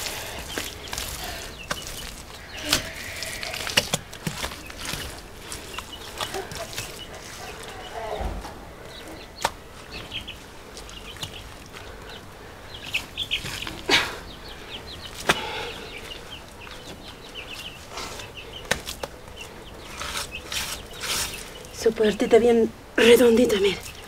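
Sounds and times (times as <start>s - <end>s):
birds chirping: 0.0s - 24.0s
hand slapping wet mud: 9.4s - 9.6s.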